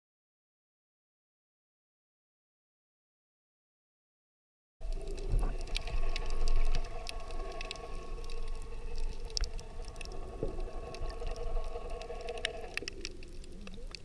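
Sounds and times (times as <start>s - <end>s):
underwater surf rumble: 4.8s - 14.0s.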